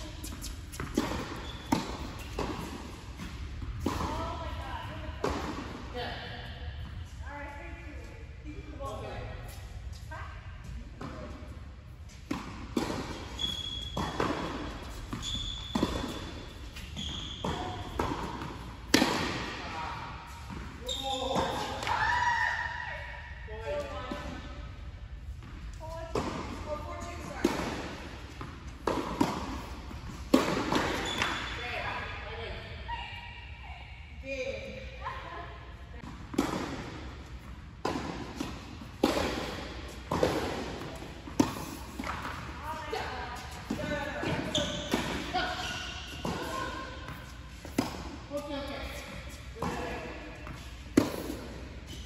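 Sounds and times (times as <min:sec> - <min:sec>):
sneakers squeaking on court: 0:00.0 - 0:05.6, 0:12.0 - 0:21.9, 0:25.4 - 0:33.1, 0:36.0 - 0:52.0
tennis ball bouncing: 0:00.1 - 0:07.0, 0:12.1 - 0:20.8, 0:25.3 - 0:31.6, 0:36.0 - 0:52.0
tennis racket striking ball: 0:00.2 - 0:04.6, 0:12.2 - 0:20.7, 0:26.0 - 0:31.6, 0:36.0 - 0:52.0.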